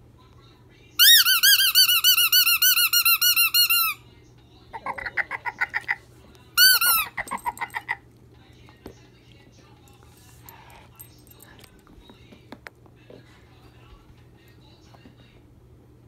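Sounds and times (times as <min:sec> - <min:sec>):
dog chewing squeaky ball: 0:06.6 - 0:08.0.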